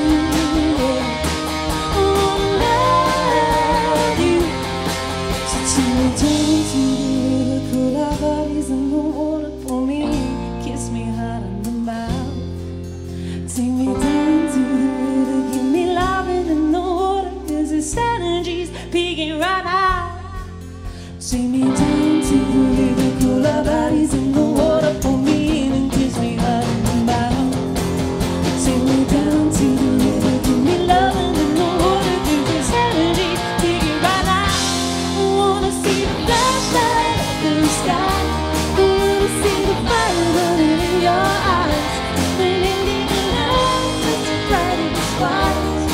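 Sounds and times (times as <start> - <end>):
acoustic pop band playing: 0.0 - 45.9.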